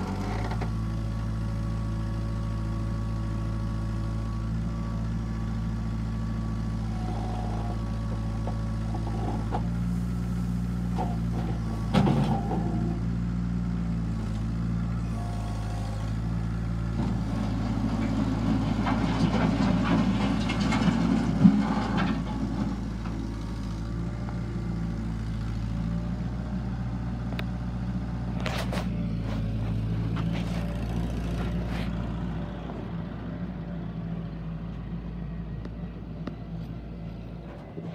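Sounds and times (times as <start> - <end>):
tractor diesel engine running: 0.0 - 37.9.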